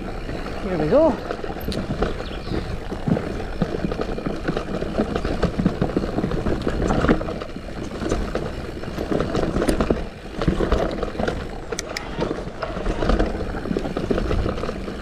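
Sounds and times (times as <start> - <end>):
bike rattling over bumps: 0.0 - 15.0
tyres rumbling over dirt: 0.0 - 15.0.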